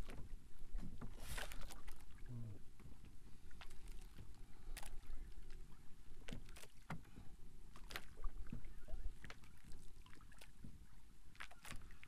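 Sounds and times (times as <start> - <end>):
water lapping against canoe hull: 0.0 - 12.0.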